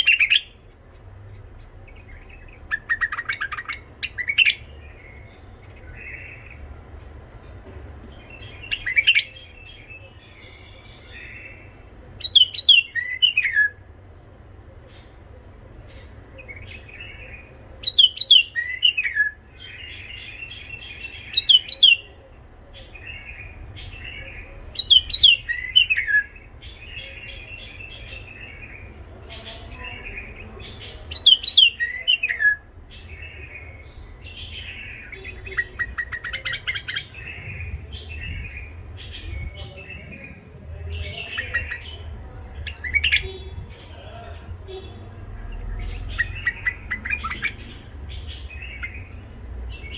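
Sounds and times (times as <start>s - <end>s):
bird chattering and twittering: 0.0s - 49.9s
bird whistling phrases: 12.2s - 13.8s.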